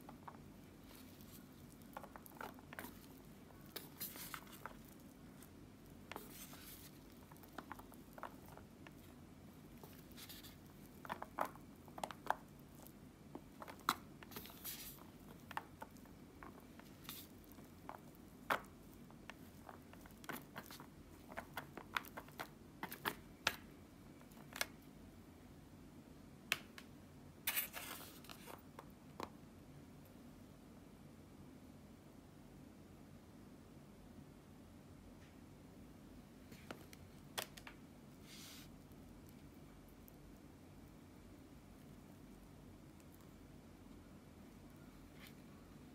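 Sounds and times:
noodles rustling: 0:00.0 - 0:23.2.

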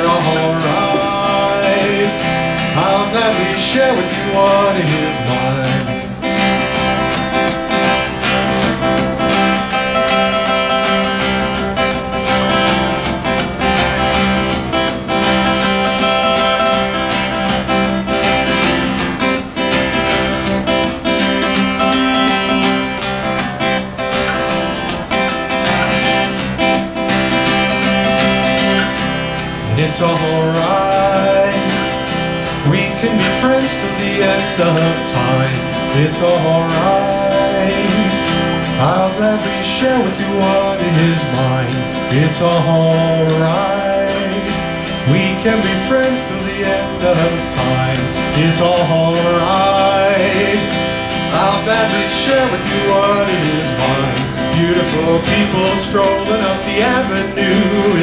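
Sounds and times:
man singing: 0:00.0 - 0:13.0, 0:27.6 - 0:58.0
acoustic guitar strumming: 0:00.0 - 0:58.0.

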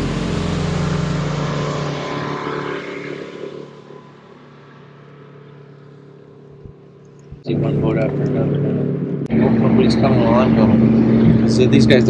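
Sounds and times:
electric boat motor humming: 0:00.0 - 0:03.2, 0:05.5 - 0:12.0
rushing wind: 0:08.8 - 0:12.0.

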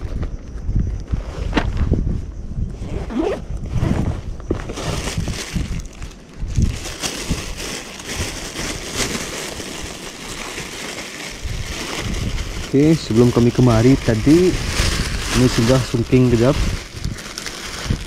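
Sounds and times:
fabric bag handling: 0:02.8 - 0:18.0
plastic bag rustling: 0:04.4 - 0:18.0.

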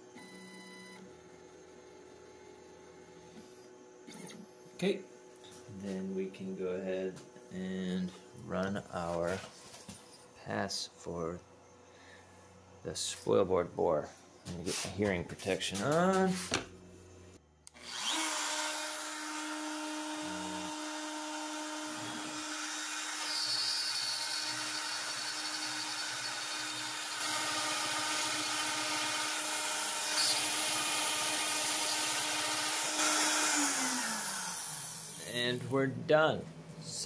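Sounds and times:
router boring into wood: 0:17.7 - 0:35.6.

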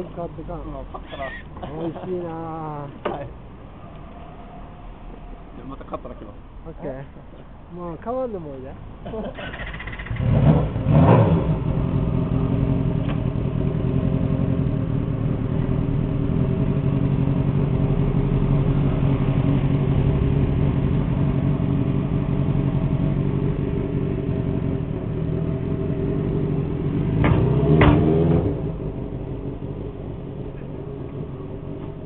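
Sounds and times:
motorcycle engine idling: 0:11.7 - 0:27.0.

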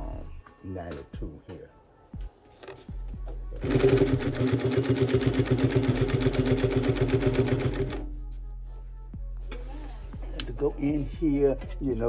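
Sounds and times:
sewing machine needle stitching: 0:03.6 - 0:08.0
sewing machine motor hum: 0:03.6 - 0:08.1.

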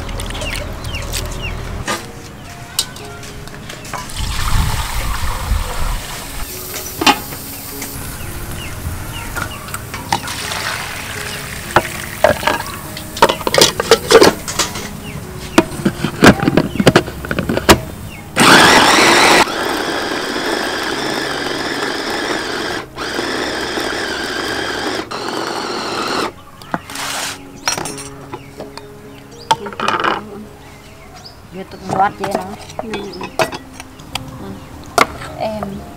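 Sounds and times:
background music: 0:00.0 - 0:35.9
kitchenware clinks and knocks: 0:11.8 - 0:17.9, 0:27.6 - 0:28.8, 0:29.5 - 0:30.3, 0:31.8 - 0:33.9
electric food chopper running: 0:18.4 - 0:26.3.

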